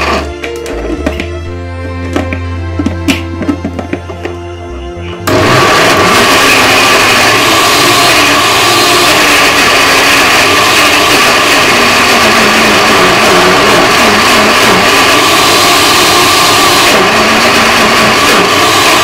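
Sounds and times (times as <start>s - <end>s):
blender running: 0.0s - 1.2s, 5.2s - 19.0s.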